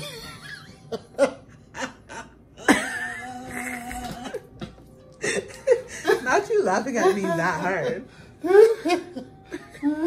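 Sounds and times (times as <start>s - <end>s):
person laughing hard: 0.0s - 4.5s, 7.0s - 10.0s.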